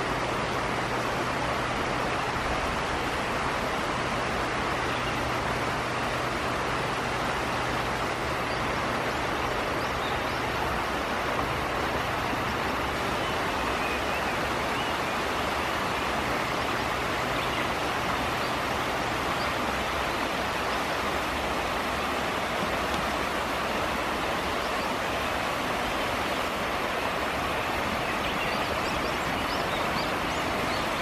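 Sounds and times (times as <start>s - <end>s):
river water rushing over stones: 0.0s - 31.0s.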